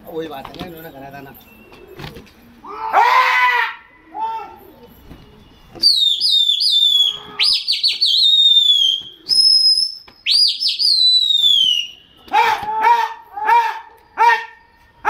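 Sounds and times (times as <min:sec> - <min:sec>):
person whistling loudly: 0:05.8 - 0:12.0.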